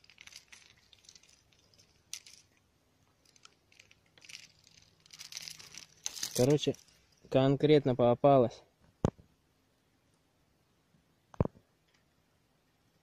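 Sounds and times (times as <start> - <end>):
faint rustling and handling: 0.0 - 7.6.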